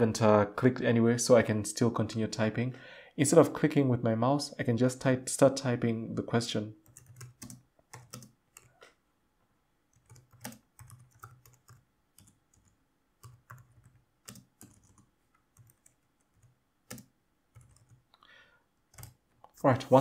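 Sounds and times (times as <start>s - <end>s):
keyboard typing: 6.8s - 8.8s, 9.9s - 18.1s, 18.9s - 19.4s.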